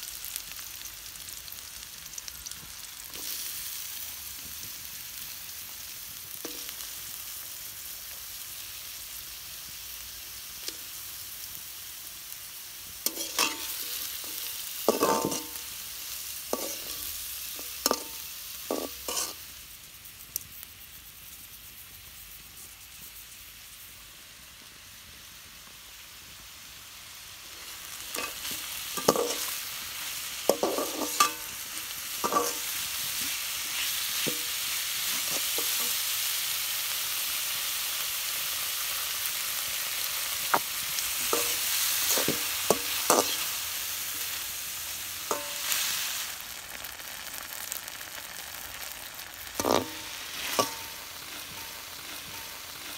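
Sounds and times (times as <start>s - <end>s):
chicken sizzling in hot oil: 0.0s - 52.9s
utensil scraping a pan: 13.1s - 15.6s, 16.5s - 19.4s, 28.1s - 29.6s, 30.5s - 36.0s, 41.2s - 43.6s, 49.6s - 52.9s.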